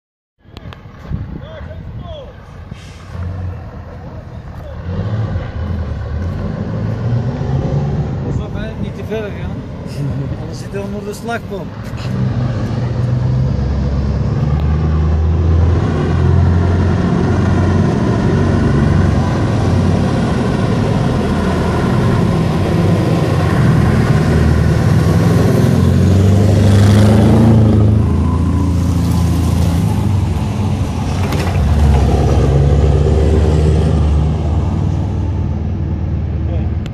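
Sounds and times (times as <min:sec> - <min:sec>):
diesel truck engine under load: 0:00.6 - 0:36.9.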